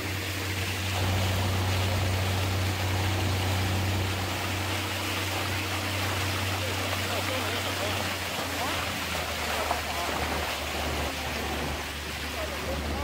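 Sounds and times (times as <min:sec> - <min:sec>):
boat motor humming: 0:00.0 - 0:13.0
water rushing past hull: 0:00.0 - 0:13.0.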